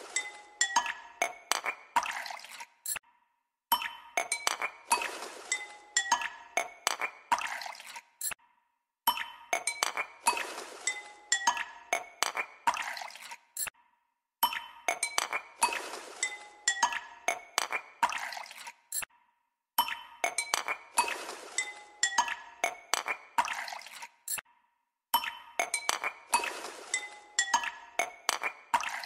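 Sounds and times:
tinkling glassy chime music loop: 0:00.0 - 0:01.5, 0:03.7 - 0:06.9, 0:09.1 - 0:12.3, 0:14.4 - 0:18.2, 0:19.8 - 0:23.6, 0:25.2 - 0:29.0.

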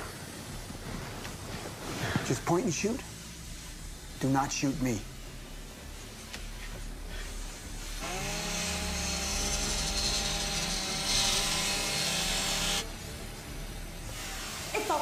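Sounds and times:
grinding hiss: 0:01.9 - 0:15.0
motor revving at high speed: 0:08.0 - 0:12.9.

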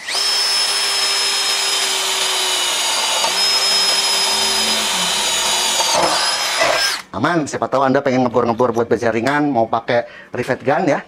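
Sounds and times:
cordless drill drilling through steel: 0:00.0 - 0:07.1.

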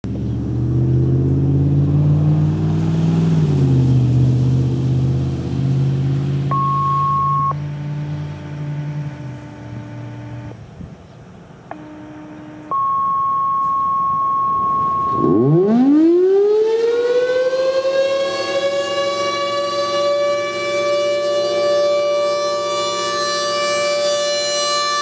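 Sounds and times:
vehicle engine idling: 0:04.0 - 0:13.1
electronic tones: 0:06.5 - 0:10.6, 0:11.7 - 0:15.7.

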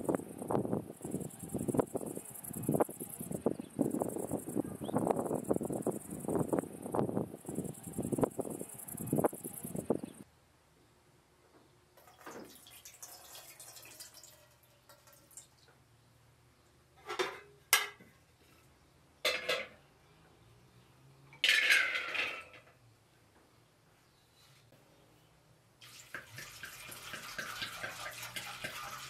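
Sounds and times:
liquid pouring and splashing: 0:12.0 - 0:15.7, 0:25.8 - 0:29.0
pot clinking on metal grate: 0:26.0 - 0:29.0.

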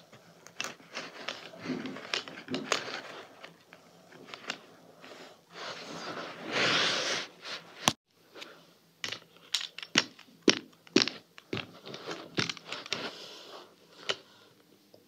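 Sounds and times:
small objects knocking on carpet: 0:09.0 - 0:13.0.

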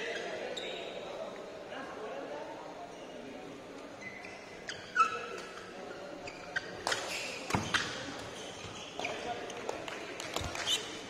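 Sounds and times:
shoes squeaking on court: 0:04.0 - 0:09.7, 0:10.4 - 0:11.0.

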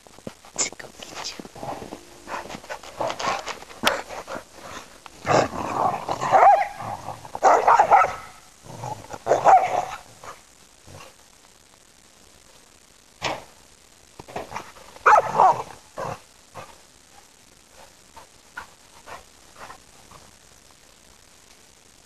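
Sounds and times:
dogs growling: 0:01.5 - 0:11.2
dogs barking: 0:06.2 - 0:06.8, 0:07.4 - 0:08.4, 0:09.2 - 0:10.0, 0:15.0 - 0:15.6.

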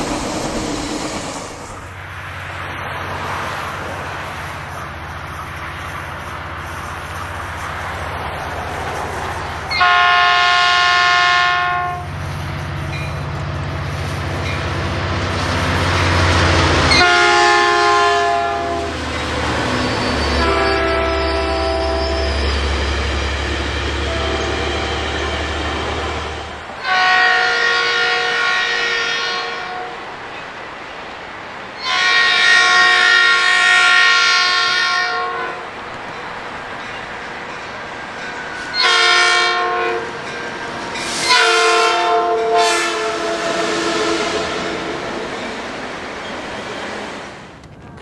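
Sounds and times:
locomotive horn chord: 0:09.7 - 0:12.1, 0:16.7 - 0:19.0, 0:20.3 - 0:22.4, 0:23.9 - 0:30.0, 0:31.8 - 0:35.7, 0:38.7 - 0:40.2, 0:41.1 - 0:45.0.

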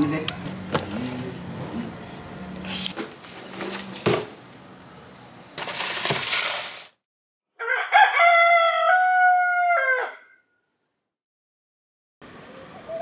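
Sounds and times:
rooster crowing: 0:07.6 - 0:10.6.

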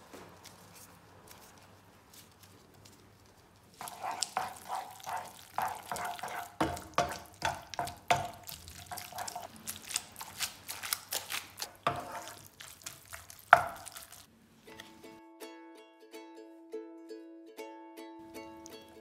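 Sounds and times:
wet pasta squelching: 0:00.4 - 0:14.3, 0:18.6 - 0:19.0
wooden spoon knocking on pan: 0:03.8 - 0:09.5, 0:13.4 - 0:14.1.

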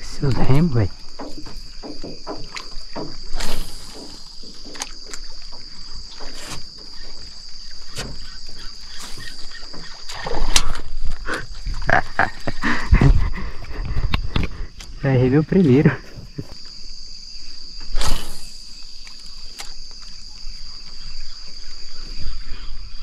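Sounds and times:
insects droning: 0:00.0 - 0:23.0
clicks and knocks on metal boat: 0:00.1 - 0:08.6.

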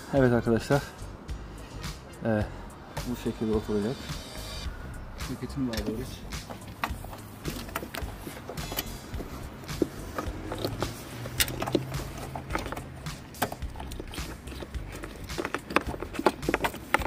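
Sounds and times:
hands clicking plastic parts: 0:05.8 - 0:17.0.

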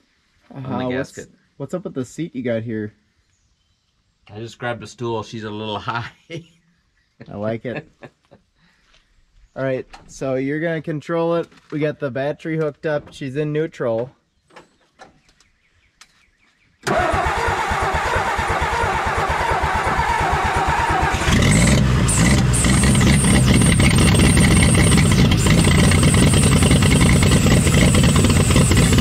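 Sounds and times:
engine cranking on starter: 0:16.8 - 0:29.0
engine running steadily: 0:16.9 - 0:29.0.

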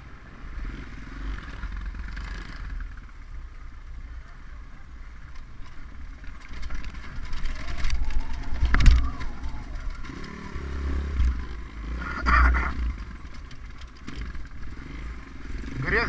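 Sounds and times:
dirt bike engine revving: 0:00.4 - 0:03.2, 0:09.0 - 0:16.0.

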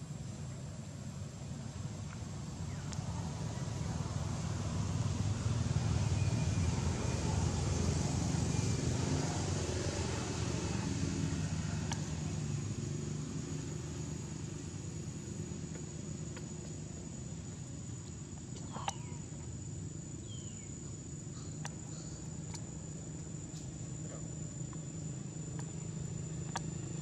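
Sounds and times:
high insect drone: 0:00.0 - 0:27.0
low engine-like rumble: 0:00.0 - 0:27.0
faint clicks: 0:18.0 - 0:19.5, 0:21.5 - 0:22.8, 0:25.5 - 0:26.7.

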